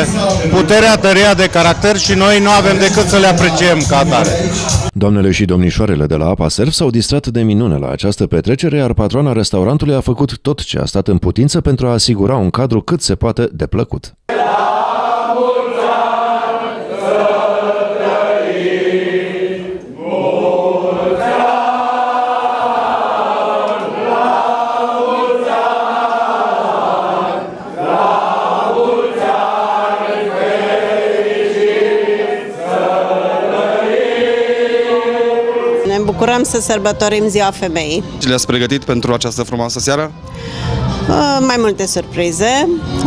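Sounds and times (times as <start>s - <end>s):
group of people singing: 14.3s - 36.9s.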